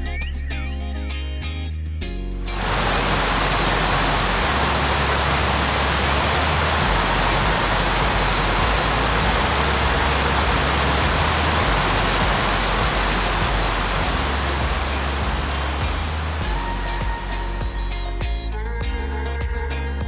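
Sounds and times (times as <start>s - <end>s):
waterfall rushing: 2.5s - 17.8s.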